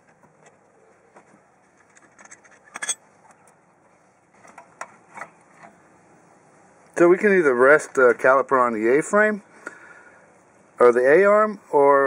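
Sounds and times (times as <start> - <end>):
metal clamp clicking and clinking: 2.0 - 3.0.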